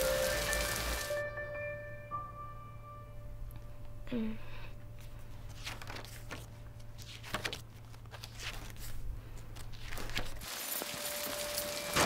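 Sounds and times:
rain hissing: 0:00.0 - 0:01.2, 0:10.4 - 0:12.0
held musical note: 0:00.0 - 0:04.7
room hum: 0:00.8 - 0:10.5
paper rustling: 0:05.1 - 0:12.0.

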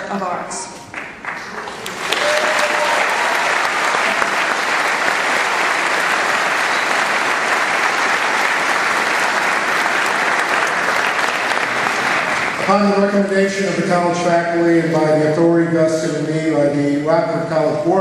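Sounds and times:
audience applauding: 0:00.9 - 0:13.2.

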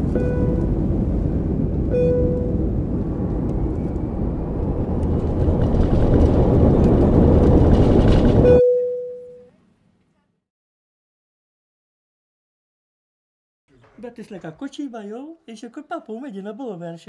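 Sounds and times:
loud low rumble: 0:00.0 - 0:08.6
short beeping tones: 0:00.1 - 0:00.7, 0:01.9 - 0:02.6, 0:08.4 - 0:09.5.

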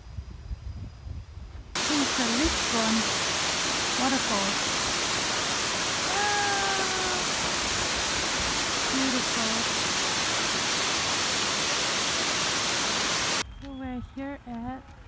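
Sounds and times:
waterfall rushing: 0:01.8 - 0:13.4.

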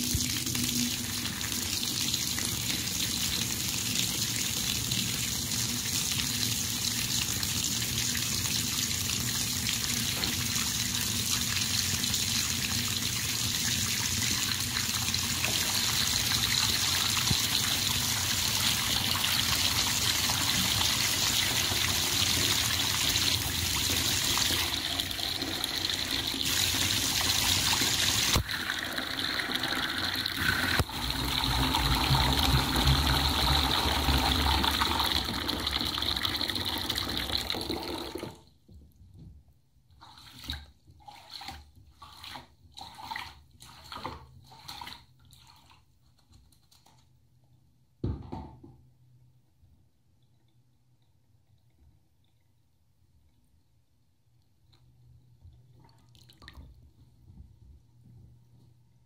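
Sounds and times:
water rushing down plughole: 0:19.9 - 0:38.3.

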